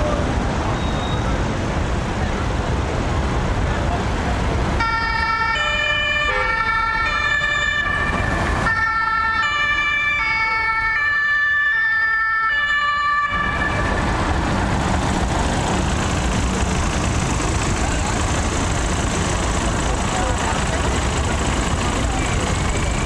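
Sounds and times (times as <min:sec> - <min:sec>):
vehicle road and engine noise: 0:00.0 - 0:23.0
two-tone siren: 0:04.8 - 0:14.1.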